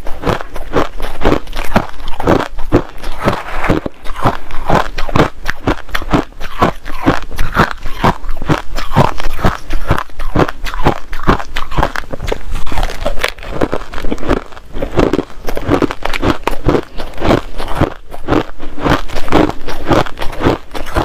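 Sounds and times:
crushed ice crunching in teeth: 0.0 - 21.0.

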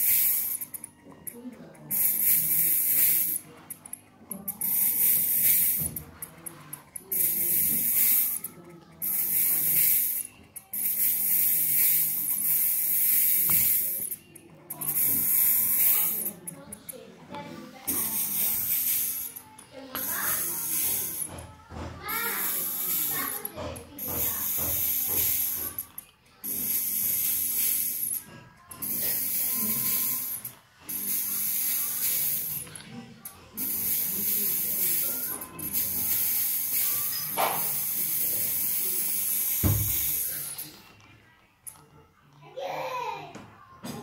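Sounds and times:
hissing fog spray: 1.9 - 3.4, 14.9 - 16.4, 17.9 - 19.4, 20.0 - 21.3, 22.1 - 25.8, 28.8 - 32.6, 33.6 - 40.6.

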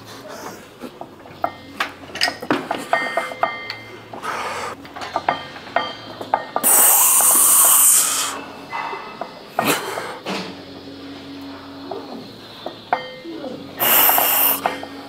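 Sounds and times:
man's sharp hissing breath: 4.2 - 4.8, 6.6 - 8.5, 13.8 - 14.9.

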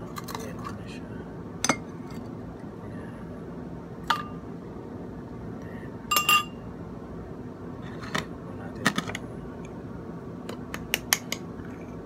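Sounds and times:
metal spoon clinking against dish: 6.1 - 6.6.

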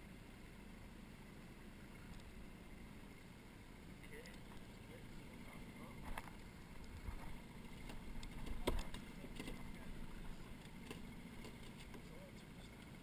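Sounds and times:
deep engine rumble: 0.0 - 13.0
gear clattering on boat: 4.1 - 13.0.

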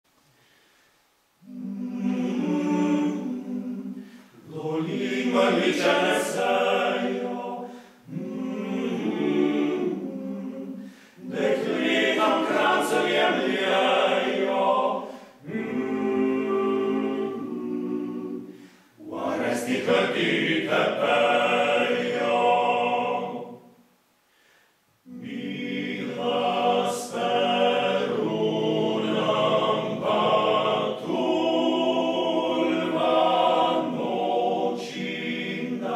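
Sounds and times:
singers breathing: 0.2 - 1.2, 3.9 - 4.4, 7.6 - 8.1, 10.7 - 11.3, 15.0 - 15.5, 18.4 - 19.0, 24.2 - 24.9
male choir singing a cappella: 1.4 - 23.7, 25.0 - 35.9.

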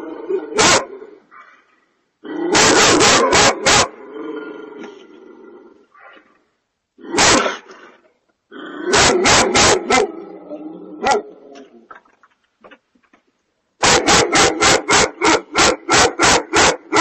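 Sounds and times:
dog barking: 0.6 - 1.6, 2.6 - 4.0, 7.2 - 7.6, 8.9 - 10.1, 11.0 - 11.3, 13.8 - 17.0.

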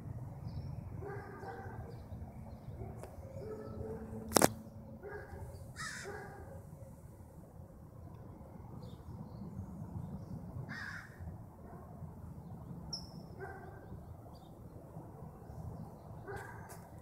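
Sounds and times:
crow cawing: 5.8 - 6.1, 10.7 - 11.2
bird chirp: 12.5 - 14.6.

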